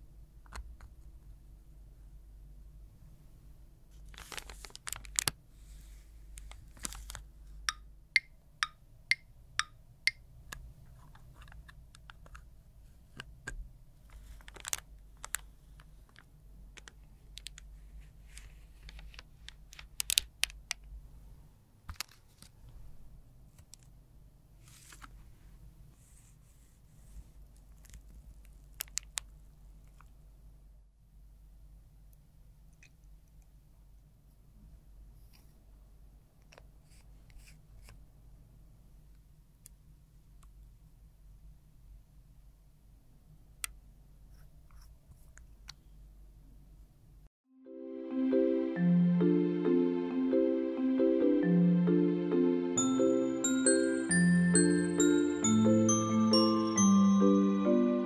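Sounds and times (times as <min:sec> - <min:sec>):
plastic bag crinkling: 0:04.0 - 0:05.4, 0:06.5 - 0:07.2, 0:14.2 - 0:17.6.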